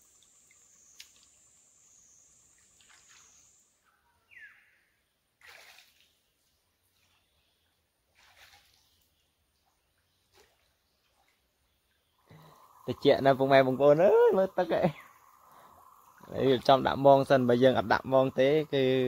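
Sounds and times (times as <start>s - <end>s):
high-pitched insect buzz: 0.0s - 3.8s, 12.2s - 19.0s.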